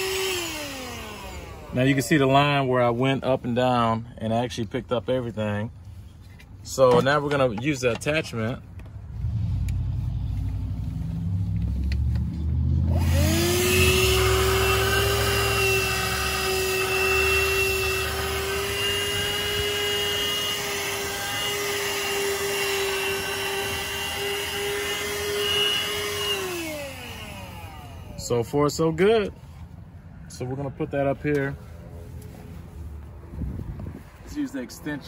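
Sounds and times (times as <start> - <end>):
handheld vacuum whining: 0.0 - 2.6, 11.8 - 28.4.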